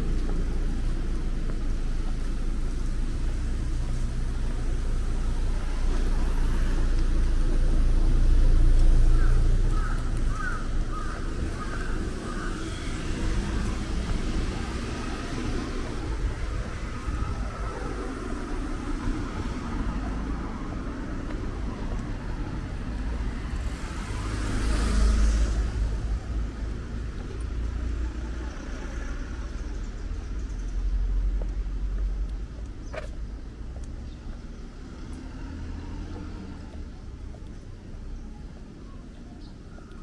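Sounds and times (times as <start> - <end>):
low traffic rumble: 0.0 - 40.0
car passing by: 11.8 - 27.0, 34.4 - 37.2.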